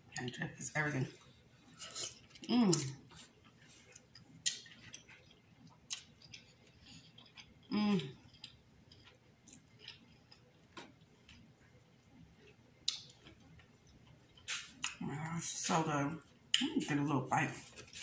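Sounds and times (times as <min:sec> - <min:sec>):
mouth smacks while chewing: 0:12.8 - 0:15.0.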